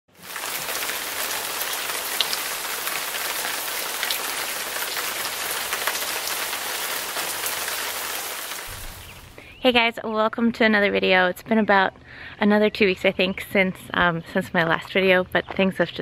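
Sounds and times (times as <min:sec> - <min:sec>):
rain drops ticking: 0:00.1 - 0:09.4
steady rain falling: 0:00.1 - 0:09.4.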